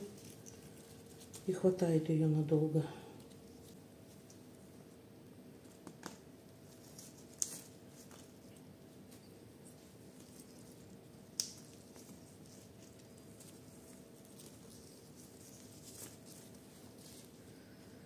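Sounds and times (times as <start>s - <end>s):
gloved hands handling wire: 0.0s - 1.5s, 5.6s - 18.0s
faint steady hum: 0.0s - 18.0s.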